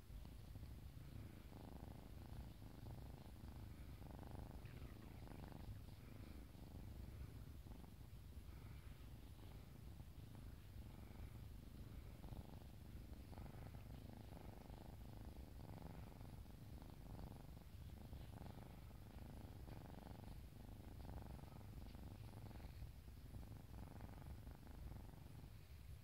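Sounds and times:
cat purring: 0.0s - 26.0s.

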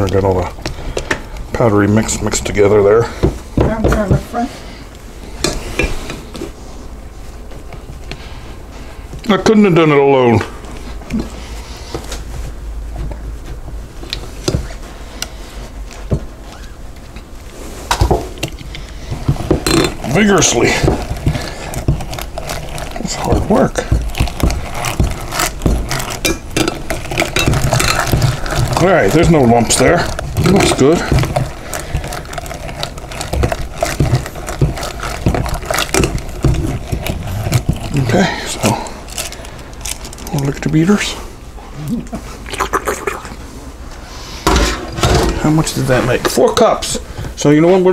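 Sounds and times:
batter churning: 0.0s - 47.9s
egg beater churning batter: 18.4s - 39.7s.

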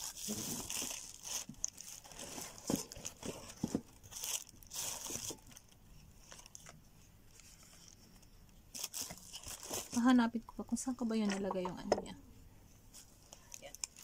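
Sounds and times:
plastic packaging crinkling: 0.0s - 6.8s, 8.7s - 10.3s, 13.2s - 14.0s.

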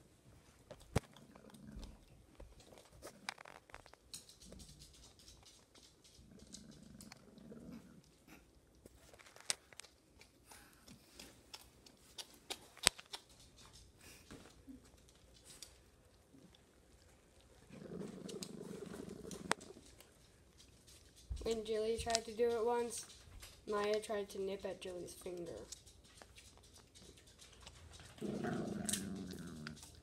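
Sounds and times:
puppy crunching on bone: 0.6s - 30.0s
teeth clicking on bone: 0.7s - 14.2s, 14.8s - 30.0s
puppy growling low: 1.0s - 3.6s, 6.0s - 8.6s, 17.4s - 20.1s, 27.9s - 30.0s.

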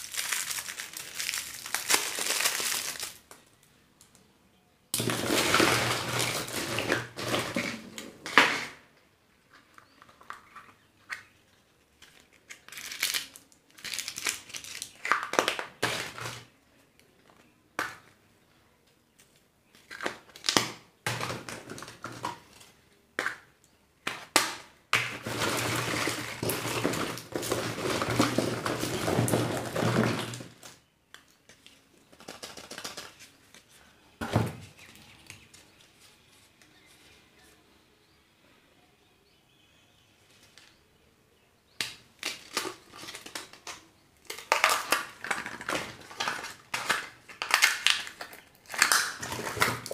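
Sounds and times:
plastic wrappers crinkling: 0.0s - 3.7s, 5.0s - 8.0s, 11.8s - 16.5s, 25.0s - 30.8s, 42.2s - 49.9s.

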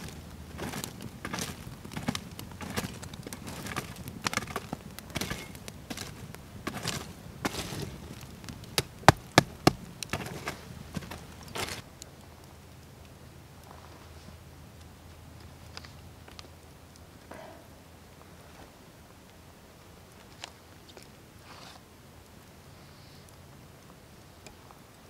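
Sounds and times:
stick raking campfire embers: 0.0s - 11.9s.

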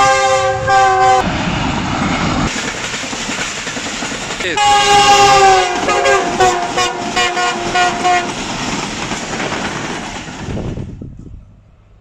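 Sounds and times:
train horn blasts: 0.0s - 1.2s, 4.6s - 8.3s
train wheels clacking over rail joints: 2.5s - 10.8s.

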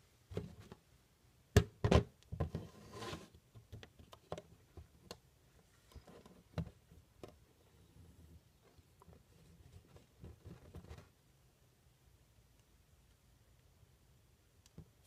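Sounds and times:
plastic scraping on table: 2.5s - 3.4s.

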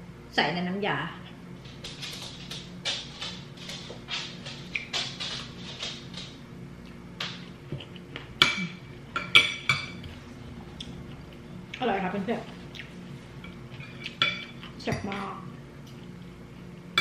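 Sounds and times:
cutlery clinking on ceramic plate: 8.4s - 10.0s.

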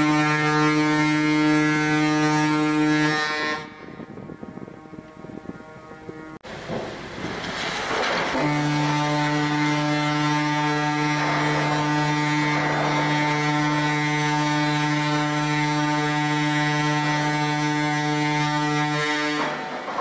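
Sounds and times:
ship's horn deep blast: 0.0s - 6.4s, 8.1s - 20.0s
rush of wind: 3.4s - 8.4s.

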